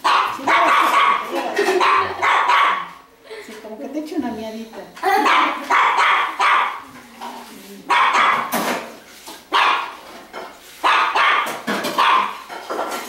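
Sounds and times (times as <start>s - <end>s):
dog barking: 0.0s - 3.0s, 5.2s - 6.8s, 7.9s - 8.6s, 9.5s - 10.0s, 10.8s - 12.5s.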